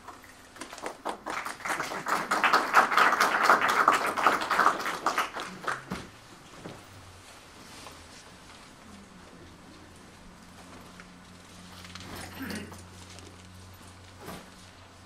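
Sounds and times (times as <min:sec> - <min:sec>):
audience applauding: 0:00.6 - 0:06.1.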